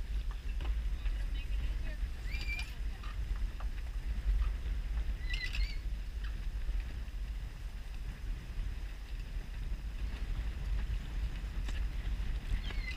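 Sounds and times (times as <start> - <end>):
wind rumbling on microphone: 0.0 - 12.9
short high squeaks: 2.2 - 2.8, 5.2 - 5.8.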